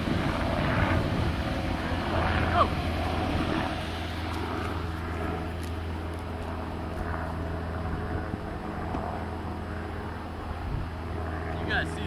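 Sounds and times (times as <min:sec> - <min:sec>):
outdoor background noise: 0:00.0 - 0:12.0
steady low hum: 0:00.0 - 0:12.0.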